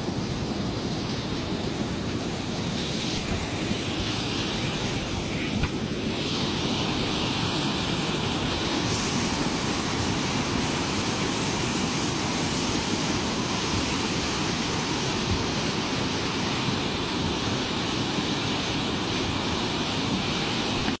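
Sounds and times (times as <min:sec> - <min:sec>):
flood water rushing: 0:00.0 - 0:21.0
wind noise on microphone: 0:00.0 - 0:21.0.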